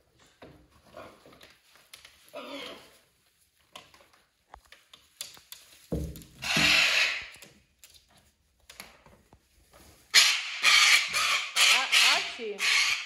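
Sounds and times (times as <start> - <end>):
parrots tapping and knocking: 5.1 - 7.6.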